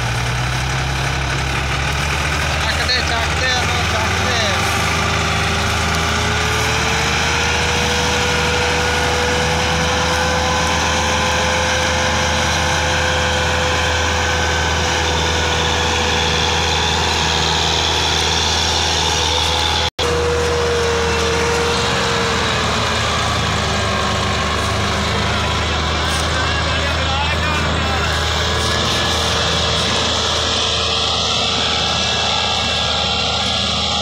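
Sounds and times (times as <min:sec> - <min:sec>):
tractor diesel engine labouring: 0:00.0 - 0:34.0.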